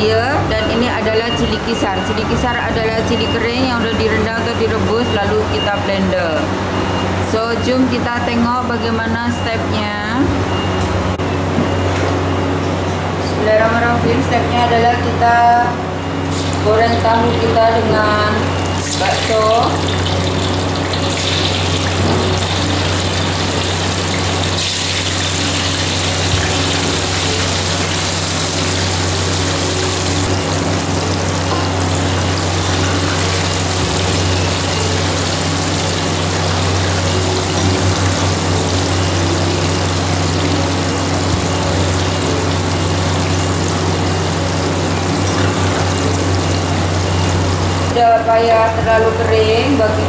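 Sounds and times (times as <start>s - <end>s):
loud low hum: 0.0s - 50.0s
oil sizzling in a wok: 18.6s - 47.9s.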